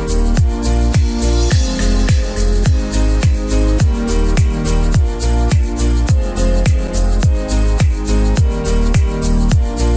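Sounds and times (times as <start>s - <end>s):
electronic music with kick drum: 0.0s - 9.9s.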